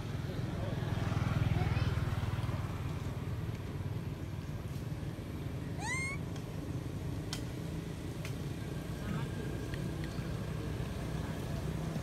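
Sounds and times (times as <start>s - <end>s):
macaque coo call: 5.8s - 6.2s.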